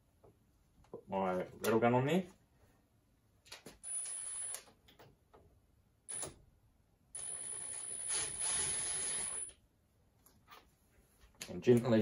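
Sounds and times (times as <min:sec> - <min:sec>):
impact wrench whining: 0:07.2 - 0:09.6.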